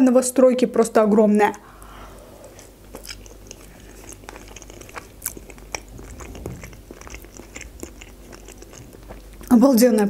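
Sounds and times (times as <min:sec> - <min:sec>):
person chewing: 0:01.7 - 0:09.5.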